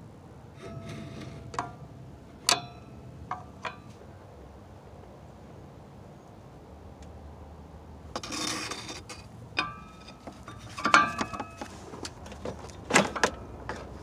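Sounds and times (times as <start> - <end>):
metal clanks ringing: 0.6 - 1.8, 2.4 - 4.0, 9.6 - 11.6
wrench scraping metal: 0.6 - 1.8, 8.2 - 11.7.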